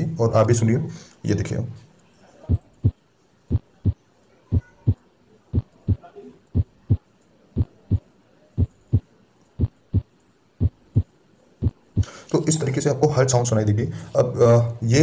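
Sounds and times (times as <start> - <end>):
heartbeat through a stethoscope: 2.5 - 5.0, 5.6 - 6.0, 6.6 - 7.0, 7.6 - 12.1.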